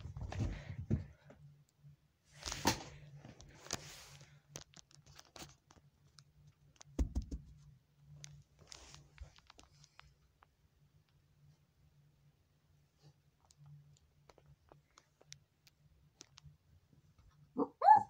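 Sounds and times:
faint low hum: 0.0s - 18.0s
rustling and scraping: 2.3s - 6.1s, 8.4s - 10.2s.

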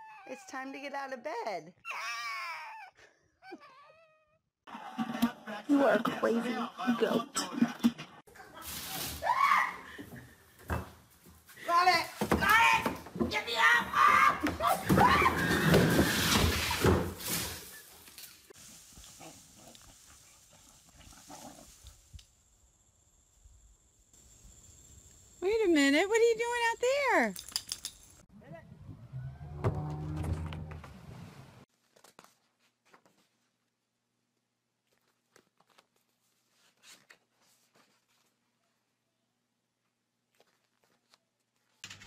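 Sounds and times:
paper page crinkling: 31.7s - 33.4s, 34.8s - 38.4s, 40.2s - 41.9s.

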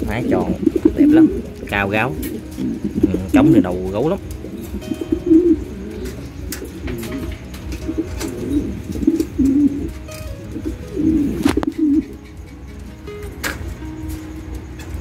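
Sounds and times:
pigeons cooing: 0.0s - 15.0s
sharp click: 13.2s - 13.7s.

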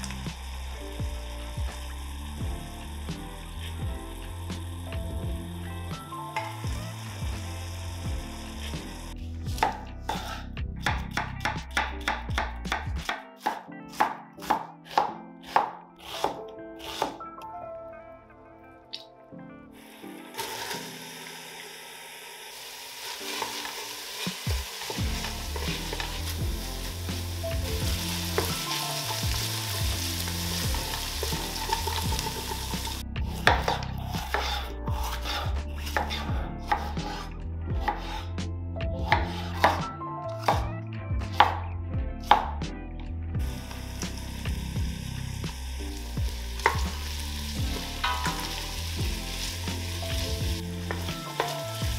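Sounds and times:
onions sizzling in oil: 0.0s - 9.2s, 19.8s - 33.8s, 43.4s - 51.9s
knife chopping on wooden board: 9.6s - 17.2s, 33.4s - 37.2s, 39.0s - 40.7s.

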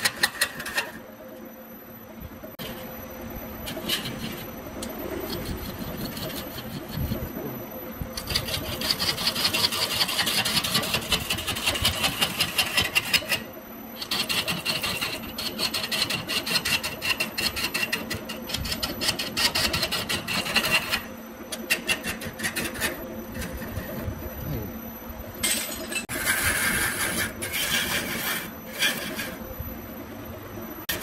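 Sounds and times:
lathe tool rasping on wood: 5.2s - 7.2s, 8.2s - 21.1s, 26.1s - 29.4s.

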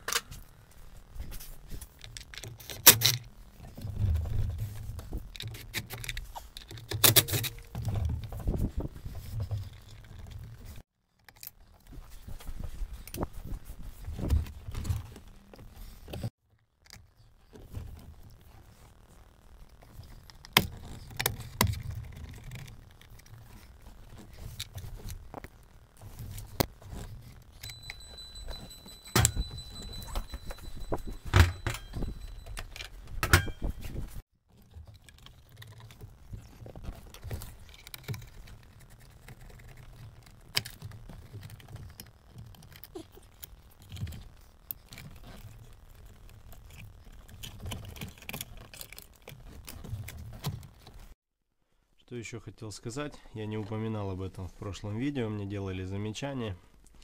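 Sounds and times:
clicks and rattles of tools: 4.6s - 10.5s, 27.5s - 36.0s
steady high beep: 27.6s - 32.6s.

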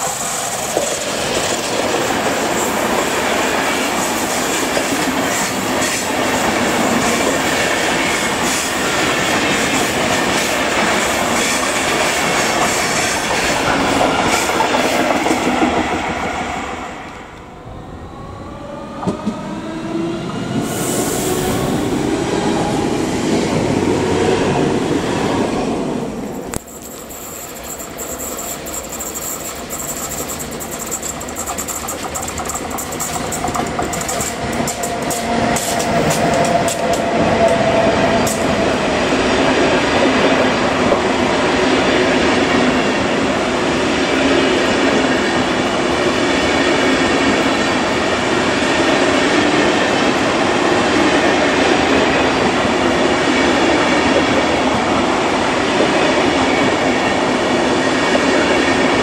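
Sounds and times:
train rumbling and rattling: 0.0s - 59.0s
wheels clattering over rail joints: 27.5s - 37.6s.

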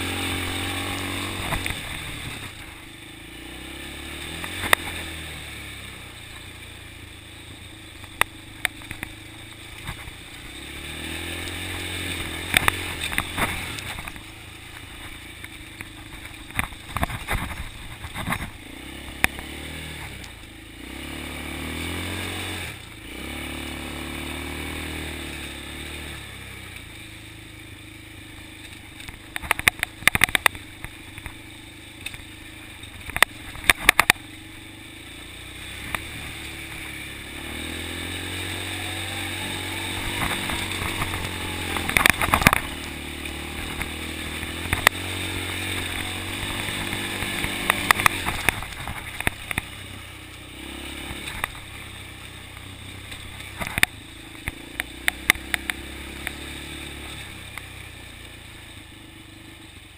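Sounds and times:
atv engine revving: 0.0s - 59.9s
sharp clatter: 11.4s - 20.5s, 28.6s - 34.8s, 39.8s - 50.1s.

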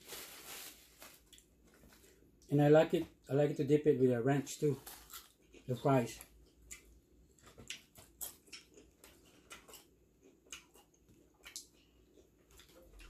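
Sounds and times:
people chewing: 5.0s - 13.0s.

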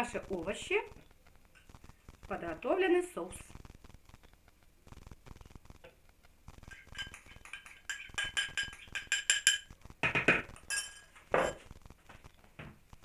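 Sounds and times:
spoon clinking on ceramic bowl: 6.7s - 9.7s, 10.7s - 11.6s.

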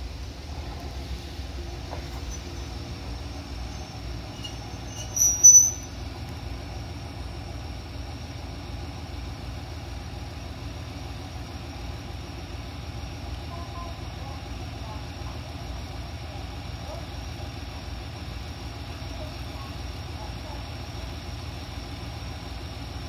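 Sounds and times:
diesel railcar engine rumble: 0.0s - 23.0s
high-pitched squeal: 2.0s - 6.0s.

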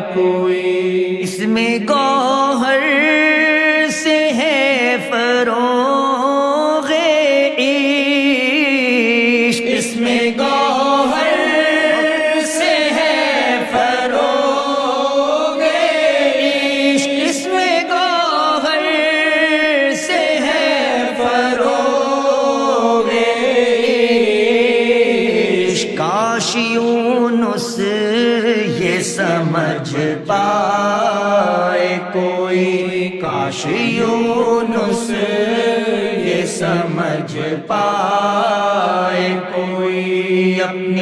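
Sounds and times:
man singing into a microphone: 0.0s - 15.7s, 16.4s - 41.0s.

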